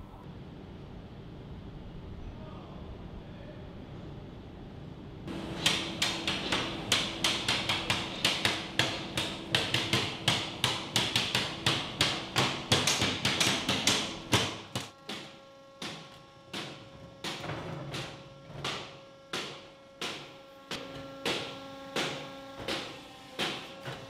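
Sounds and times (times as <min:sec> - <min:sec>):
hammer blows on barrel hoops: 0:05.3 - 0:24.0.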